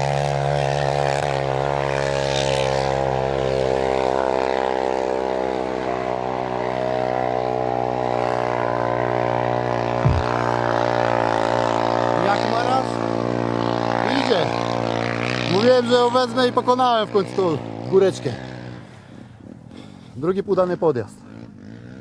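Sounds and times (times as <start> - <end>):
low thump: 10.0 - 10.5
dirt bike engine idling: 10.0 - 11.3.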